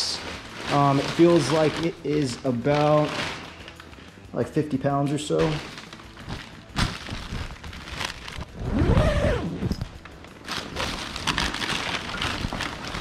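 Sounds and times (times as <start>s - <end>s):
cloth and plastic rustling: 0.0s - 13.0s
zipper on bag pulled open: 8.4s - 9.8s.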